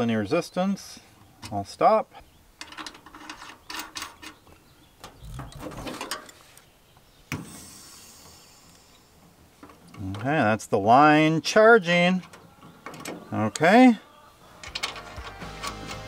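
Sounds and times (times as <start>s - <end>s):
refrigerant gas hissing: 7.3s - 9.8s.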